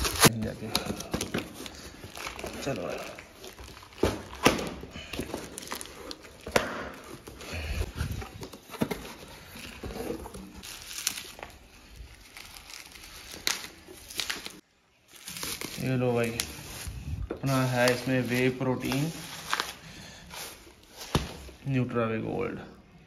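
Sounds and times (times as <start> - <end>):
cardboard tearing: 0.0 - 4.6
plastic wrap crinkling: 0.0 - 21.6.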